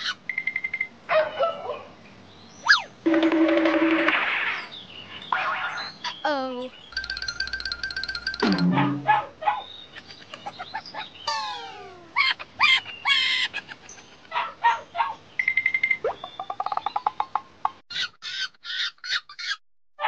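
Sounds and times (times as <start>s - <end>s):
animal chirps and squeaks: 2.6s - 2.9s, 8.3s - 14.1s, 17.9s - 19.6s.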